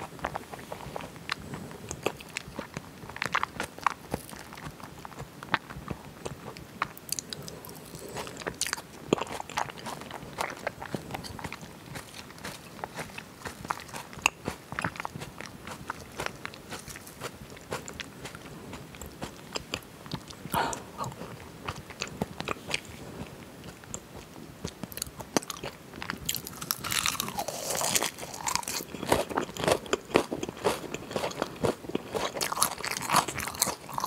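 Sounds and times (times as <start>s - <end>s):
wet chewing sounds: 0.0s - 34.0s.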